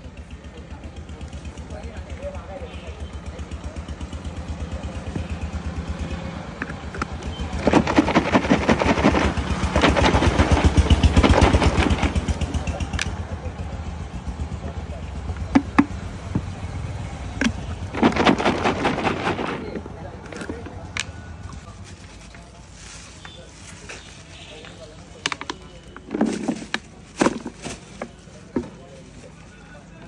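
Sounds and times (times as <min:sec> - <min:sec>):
low engine putter: 0:00.0 - 0:30.0
food shaken in plastic jar: 0:07.5 - 0:12.7, 0:17.4 - 0:24.5.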